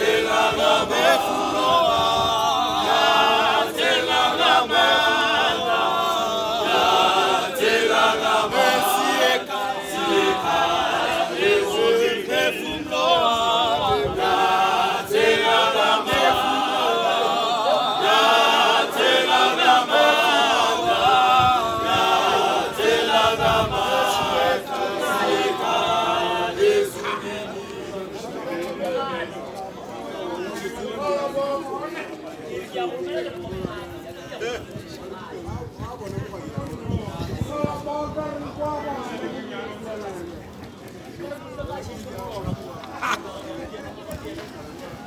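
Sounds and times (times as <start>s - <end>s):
male choir singing a cappella: 0.0s - 29.4s.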